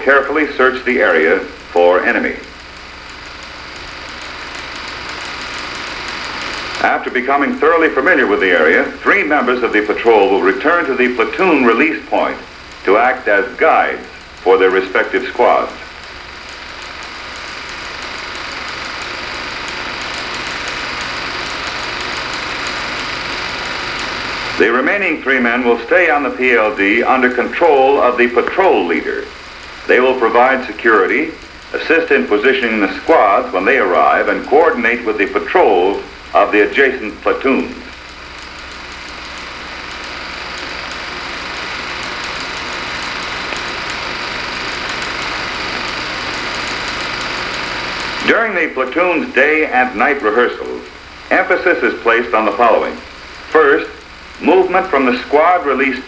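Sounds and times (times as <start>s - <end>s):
steady hiss: 0.0s - 56.0s
faint rapid ticking: 0.2s - 56.0s
faint crackling ticks: 37.5s - 48.2s.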